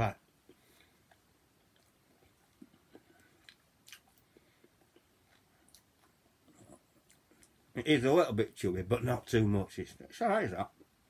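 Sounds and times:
faint chewing of bread: 0.2s - 7.8s.

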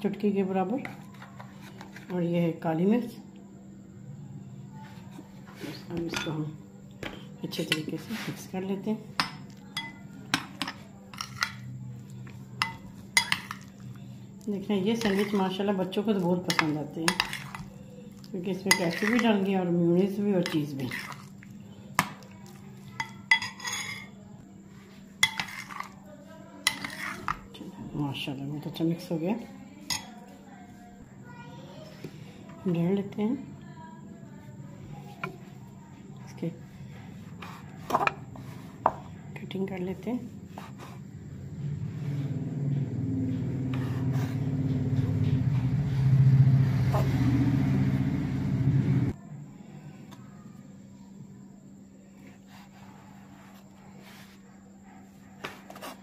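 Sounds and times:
spoon mixing thick filling: 7.1s - 27.8s
spoon clinking against glass bowl: 9.2s - 11.6s, 12.6s - 13.7s, 22.9s - 24.1s
engine pulsing hum: 41.1s - 49.2s.

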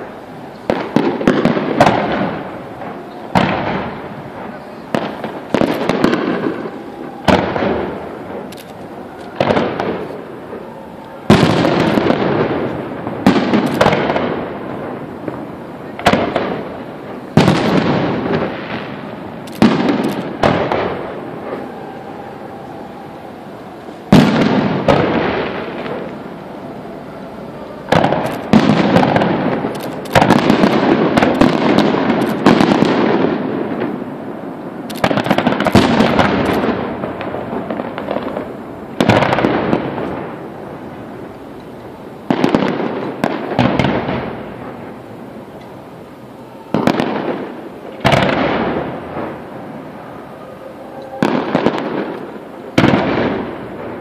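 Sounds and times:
fireworks bursting with bangs: 0.0s - 54.0s.

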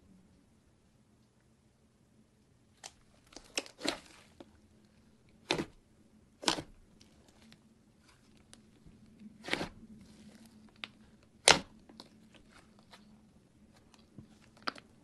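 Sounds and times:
slime crackling and popping: 2.8s - 4.5s, 6.4s - 8.7s, 9.4s - 13.1s.

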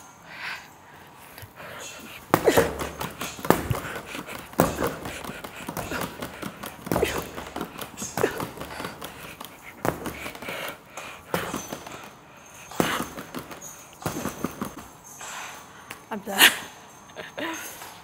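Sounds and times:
gloves thudding on punching bag: 2.2s - 14.9s.

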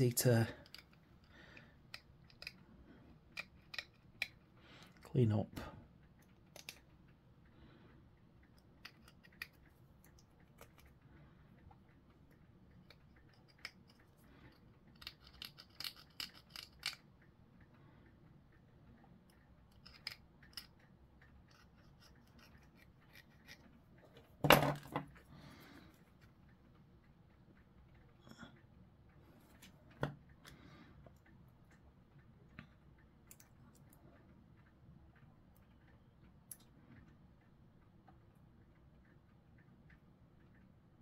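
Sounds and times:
hobby tools scraping and clicking: 0.2s - 2.6s, 3.3s - 5.1s, 8.8s - 10.9s, 12.8s - 17.0s, 19.7s - 20.8s, 21.4s - 25.2s.

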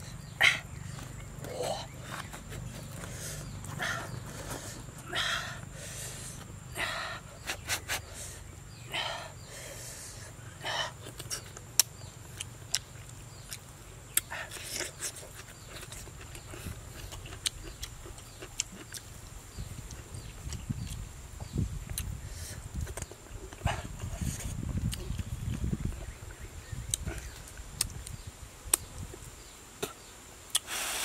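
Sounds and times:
person chewing: 10.9s - 19.1s, 19.9s - 21.0s.

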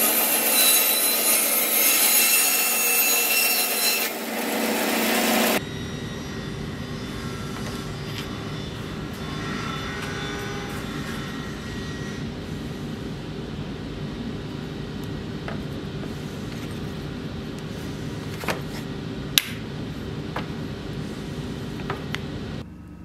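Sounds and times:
low machine hum: 5.6s - 23.0s.

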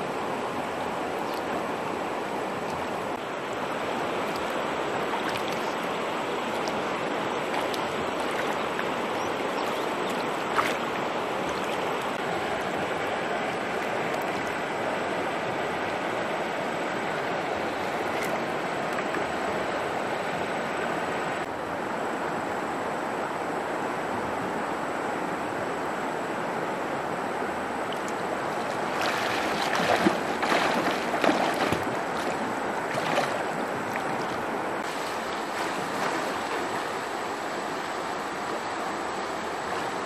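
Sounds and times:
stream water rushing: 0.0s - 40.0s
splashes in water: 4.2s - 5.9s, 6.5s - 12.2s, 28.0s - 36.9s.

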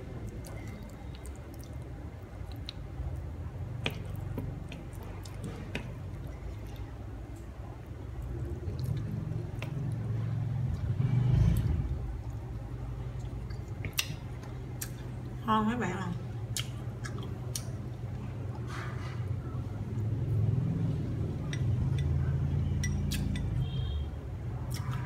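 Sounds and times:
wet squishing of chicken: 0.0s - 10.8s
low steady hum: 0.0s - 25.0s.

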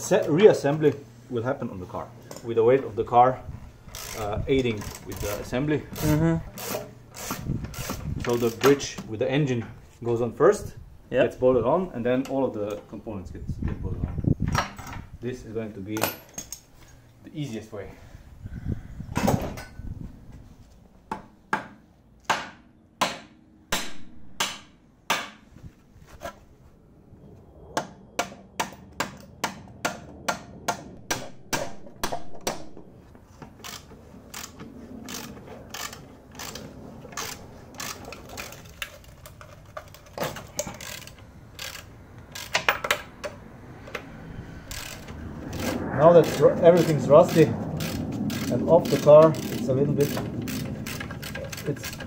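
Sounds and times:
ratchet wrench clicking: 3.9s - 8.7s, 33.6s - 36.6s, 37.2s - 39.2s, 39.8s - 43.1s, 44.7s - 52.0s
metallic clicks and knocks: 31.1s - 44.1s.

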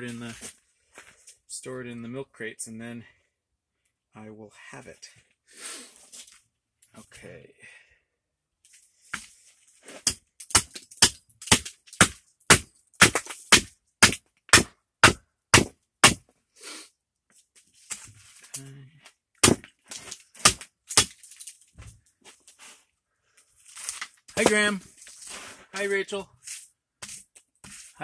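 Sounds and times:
axe chopping wood: 10.0s - 16.2s, 19.4s - 21.2s.

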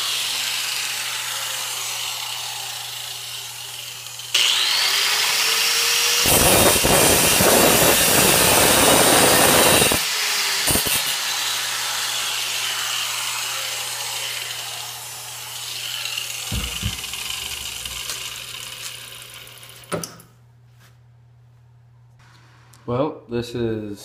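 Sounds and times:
angle grinder cutting steel: 0.0s - 19.9s
grinder wheel spinning down whine: 0.0s - 19.9s
dull knocks: 16.5s - 17.1s.

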